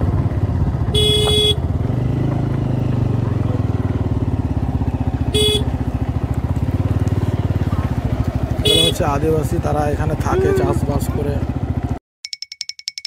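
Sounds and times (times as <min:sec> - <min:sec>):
motorcycle engine running: 0:00.0 - 0:12.0
horn beeps: 0:00.9 - 0:01.6, 0:05.4 - 0:05.8.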